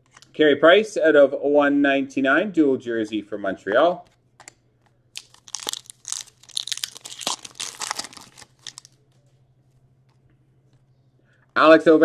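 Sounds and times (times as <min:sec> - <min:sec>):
plastic wrapper crinkling: 0:05.1 - 0:09.2.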